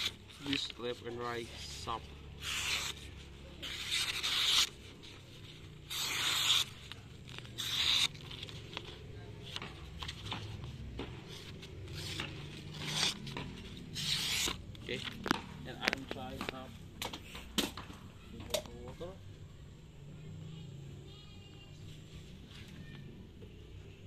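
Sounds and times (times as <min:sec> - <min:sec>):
blade slicing paper: 0:00.0 - 0:10.6, 0:11.2 - 0:16.2
paper rustling: 0:00.0 - 0:16.6.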